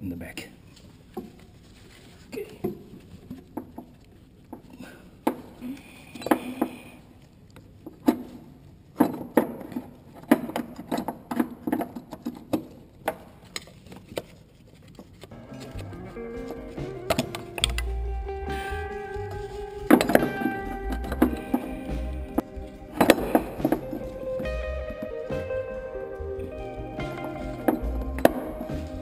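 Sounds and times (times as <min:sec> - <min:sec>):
hand tools clicking on metal: 0:15.6 - 0:18.3.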